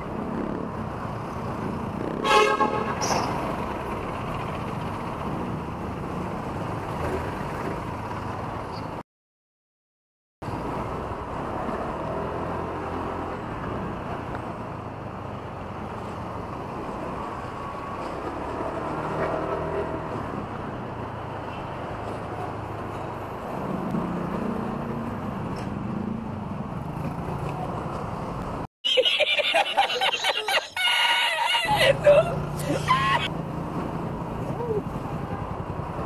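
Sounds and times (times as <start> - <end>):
road and traffic noise: 0.0 - 9.0, 10.4 - 36.0
voices: 29.0 - 33.3.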